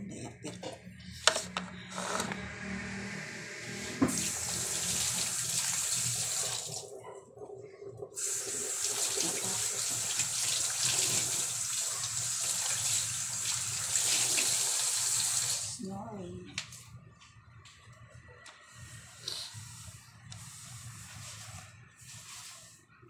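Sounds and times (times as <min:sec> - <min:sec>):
tap water running into sink: 0:04.0 - 0:07.0, 0:08.1 - 0:15.7.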